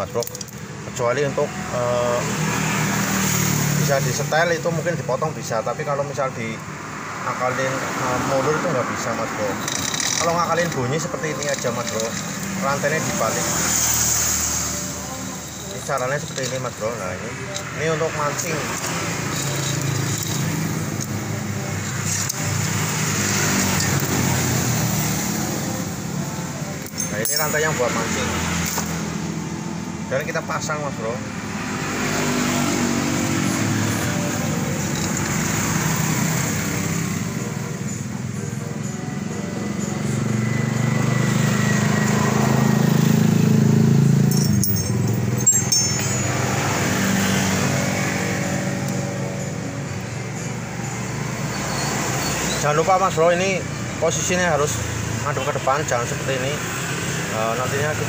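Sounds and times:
vehicle engine humming: 0:00.0 - 0:58.0
sharp metallic clicks: 0:09.6 - 0:10.8.

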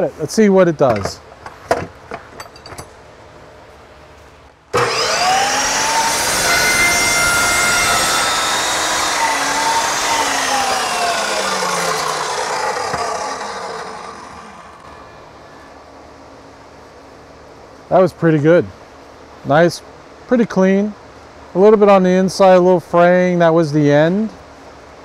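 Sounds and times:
chop saw whine: 0:04.7 - 0:15.7
saw cutting cardboard tubing: 0:04.8 - 0:14.9.

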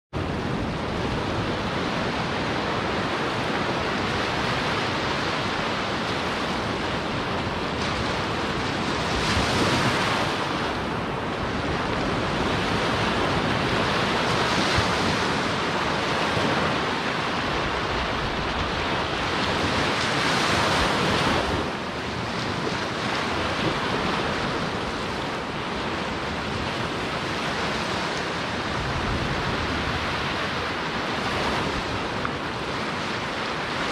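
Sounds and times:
surf washing up beach: 0:00.2 - 0:33.9.

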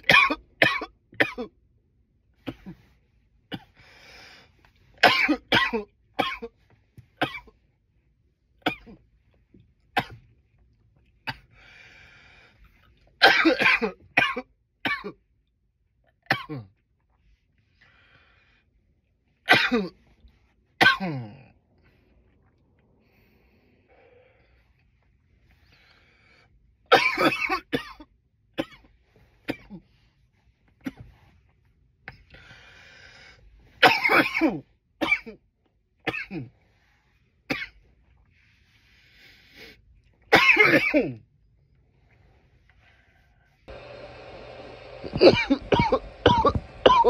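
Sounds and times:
man coughing: 0:00.0 - 0:01.5, 0:05.0 - 0:06.5, 0:13.2 - 0:15.2, 0:19.5 - 0:20.0, 0:20.8 - 0:21.5, 0:26.9 - 0:28.0, 0:33.8 - 0:35.4, 0:40.3 - 0:41.2, 0:45.0 - 0:47.0.

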